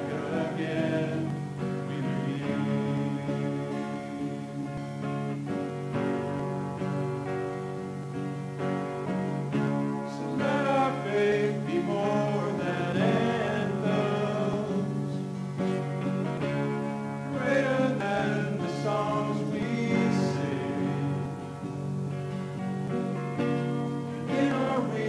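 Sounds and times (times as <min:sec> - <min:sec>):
voices singing: 0:00.0 - 0:05.6, 0:09.5 - 0:16.6, 0:17.2 - 0:21.8, 0:23.4 - 0:25.0
electric guitar: 0:00.0 - 0:25.0
strummed acoustic guitar: 0:00.0 - 0:25.0.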